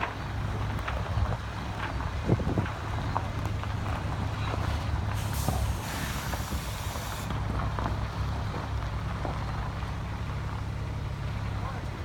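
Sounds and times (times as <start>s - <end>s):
vehicle engine running: 0.0s - 12.0s
hiss: 5.2s - 7.4s.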